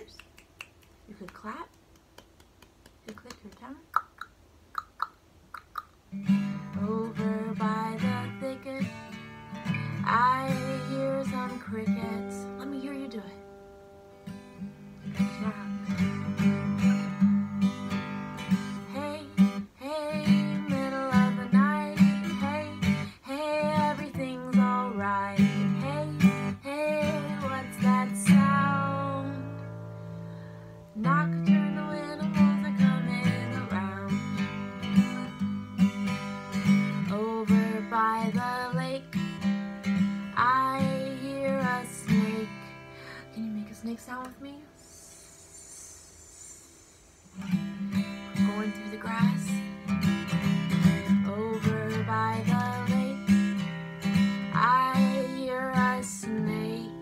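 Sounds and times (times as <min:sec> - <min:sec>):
acoustic guitar strumming: 0:06.1 - 0:45.5, 0:47.3 - 0:57.0
woman singing: 0:06.6 - 0:13.5, 0:15.2 - 0:16.1, 0:18.5 - 0:29.7, 0:31.0 - 0:34.5, 0:36.9 - 0:39.5, 0:40.2 - 0:46.7, 0:47.5 - 0:50.1, 0:50.8 - 0:53.7, 0:54.5 - 0:57.0.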